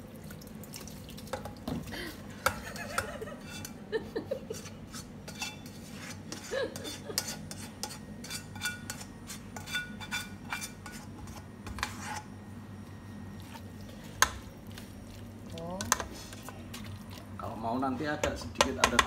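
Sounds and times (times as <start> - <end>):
spatula scraping frying pan: 2.5 - 3.8, 4.4 - 12.4.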